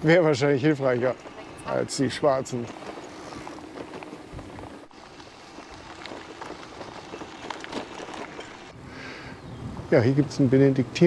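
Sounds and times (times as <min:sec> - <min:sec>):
bike tyres crunching on gravel: 0:00.0 - 0:08.8
wind on microphone: 0:02.6 - 0:08.7, 0:09.4 - 0:09.9.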